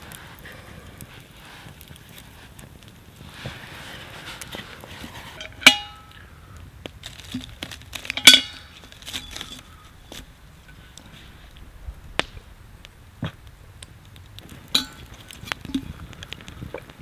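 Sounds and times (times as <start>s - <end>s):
metal pot clanking: 5.4s - 6.1s, 8.1s - 9.6s, 14.7s - 15.1s.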